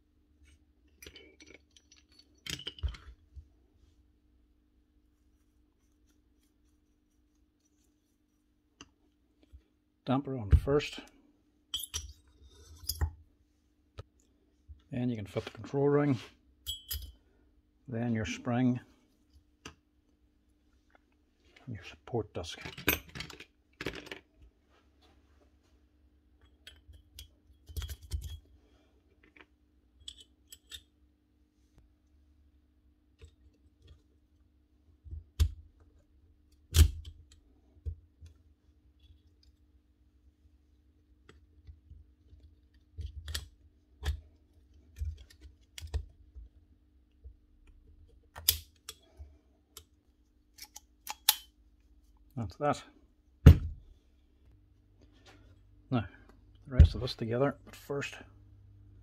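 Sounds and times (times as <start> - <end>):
metal parts clicking and clinking: 0.9 - 3.2, 16.7 - 17.2, 30.0 - 30.9.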